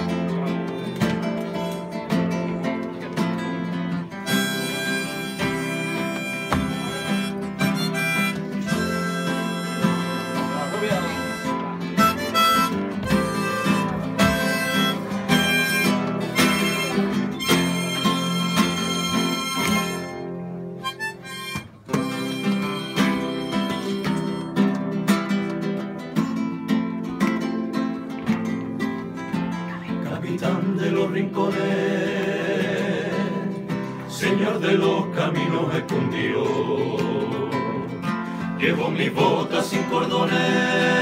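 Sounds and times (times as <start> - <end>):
acoustic guitar strumming: 0.0 - 41.0
harmonica melody: 4.2 - 24.9.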